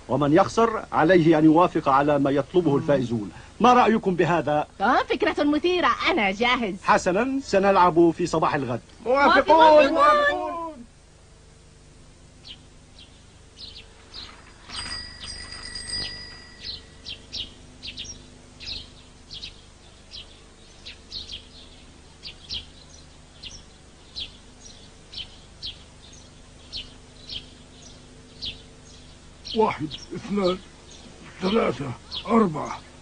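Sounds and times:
birds chirping: 0.0s - 33.0s
steady high tone: 13.6s - 18.2s.

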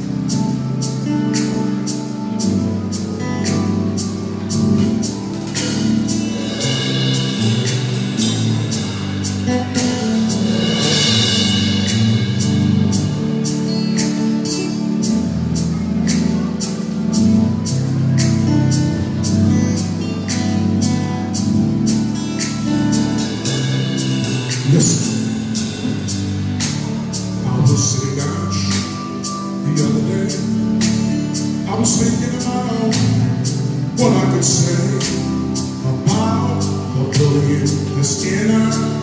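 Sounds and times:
drum kit beat: 0.0s - 39.0s
sustained bass and chords: 0.0s - 39.0s
cymbal strikes: 5.3s - 15.8s, 21.8s - 27.5s.

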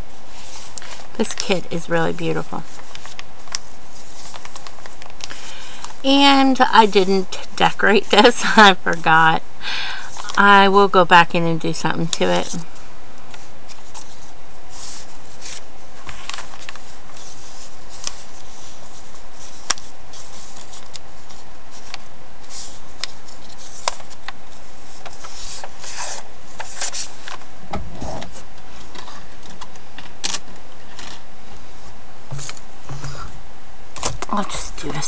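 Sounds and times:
paper pages rustling: 0.3s - 6.0s, 10.0s - 10.5s, 12.0s - 12.7s, 13.3s - 33.4s.

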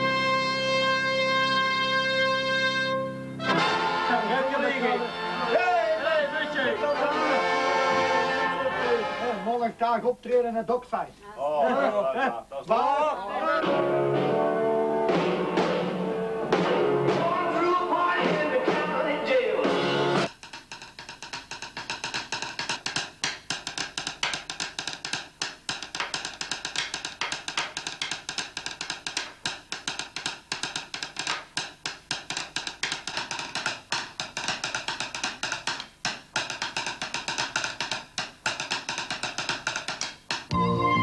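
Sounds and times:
drumsticks beating on wooden table: 20.3s - 40.6s.

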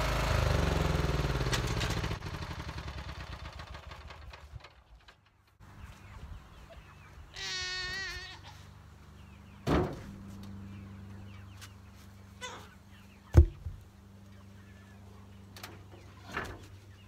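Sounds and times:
wooden posts knocking and thudding: 13.3s - 13.8s.

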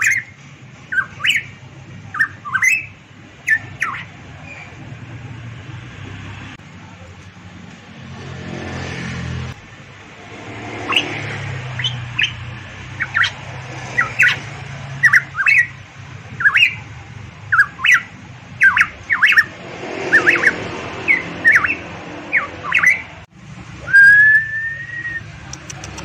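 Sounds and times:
bird whistling sharp notes: 0.0s - 1.5s, 2.1s - 4.7s, 10.8s - 11.2s, 16.4s - 16.8s, 17.5s - 23.1s, 23.8s - 25.3s.

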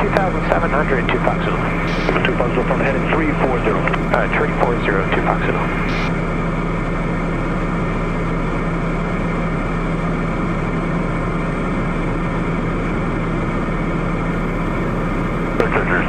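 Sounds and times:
turboprop engine humming: 0.0s - 16.0s
airflow rushing: 1.4s - 2.4s.

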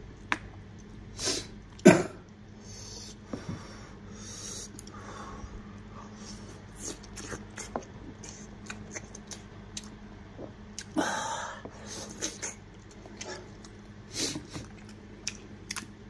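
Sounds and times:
faint low hum: 0.0s - 16.0s
chewing and mouth smacks: 6.7s - 11.0s, 12.0s - 13.9s, 14.5s - 16.0s.

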